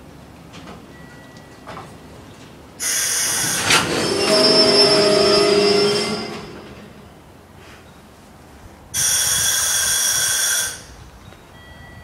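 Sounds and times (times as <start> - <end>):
train brakes hissing and squealing: 2.8 - 7.9, 9.0 - 11.0.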